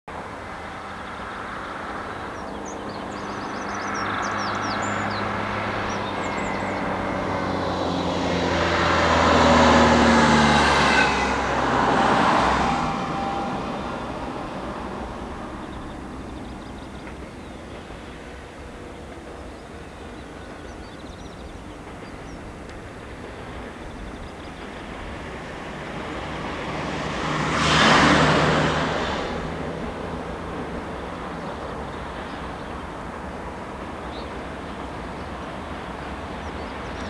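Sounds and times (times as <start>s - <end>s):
diesel locomotive engine droning: 0.1s - 37.0s
birds chirping: 1.0s - 9.1s, 13.2s - 25.4s.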